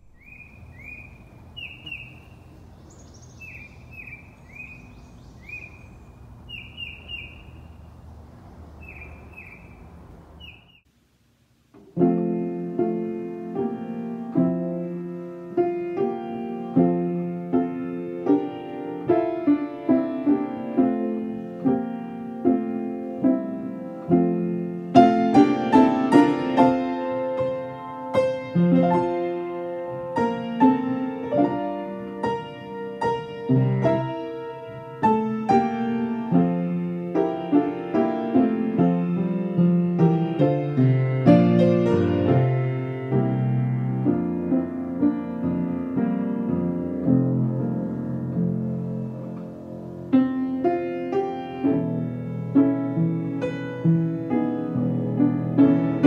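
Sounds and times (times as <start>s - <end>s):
birds chirping: 0.0s - 10.9s, 12.8s - 19.6s
solo piano music: 0.0s - 10.9s, 11.7s - 56.0s
low background noise: 0.0s - 56.0s.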